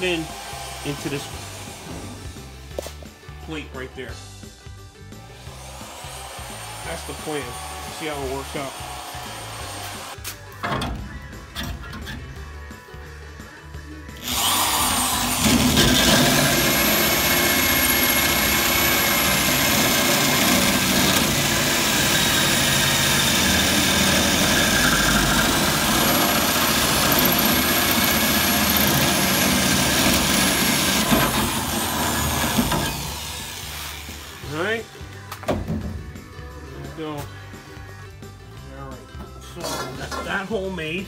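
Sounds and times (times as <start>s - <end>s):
electric drill cutting steel: 0.0s - 2.6s, 5.3s - 10.2s, 14.1s - 34.8s.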